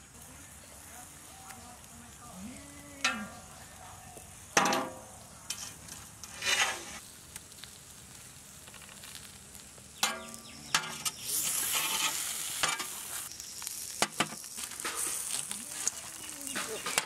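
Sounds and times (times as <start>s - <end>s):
sizzling hiss: 0.0s - 17.0s
metal scrape: 4.6s - 7.0s, 10.0s - 13.3s, 14.0s - 15.5s
metal skewers clanking on plate: 10.0s - 13.0s.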